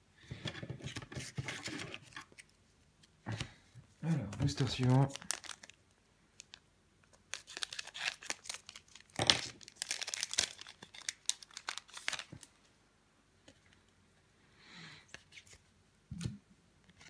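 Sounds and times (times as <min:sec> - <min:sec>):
foil wrapper tearing and crinkling: 0:04.4 - 0:05.8, 0:07.3 - 0:12.5.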